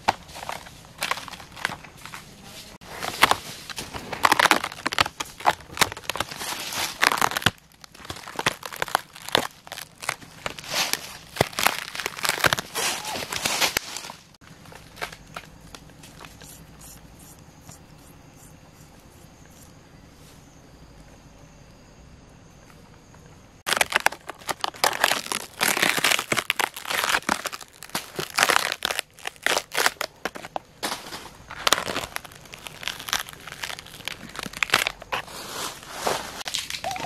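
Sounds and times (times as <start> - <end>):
rotten wood crackling and splintering: 0.0 - 2.2, 2.8 - 15.9, 23.7 - 35.2.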